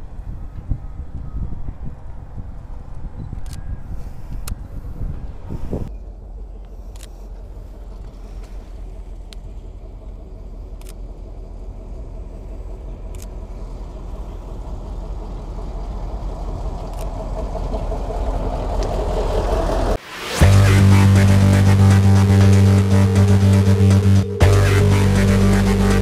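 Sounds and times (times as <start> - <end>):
vehicle engine approaching: 5.9 - 26.0.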